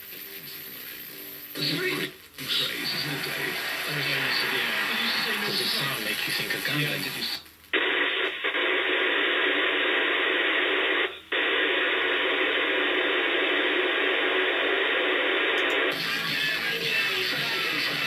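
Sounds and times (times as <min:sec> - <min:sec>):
radio receiver hiss: 0:00.0 - 0:18.0.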